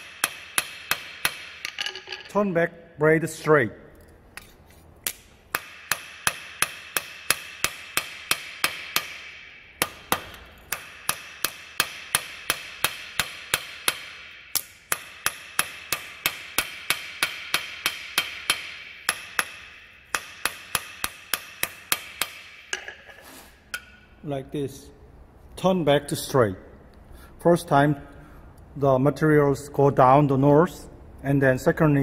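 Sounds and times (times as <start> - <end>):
hammer striking blade on anvil: 5.0 - 23.1.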